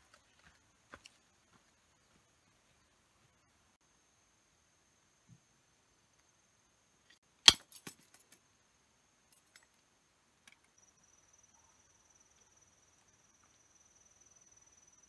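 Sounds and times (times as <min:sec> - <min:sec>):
high insect trill: 0:00.0 - 0:15.0.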